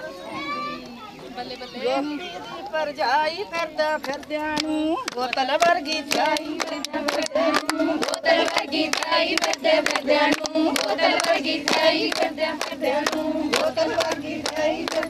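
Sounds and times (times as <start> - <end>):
women singing together: 1.8 - 15.0
rhythmic hand-clapping: 3.6 - 15.0.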